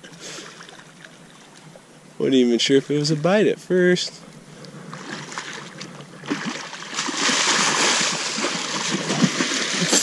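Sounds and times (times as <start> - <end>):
water splashing from thrashing fish: 4.9 - 10.0.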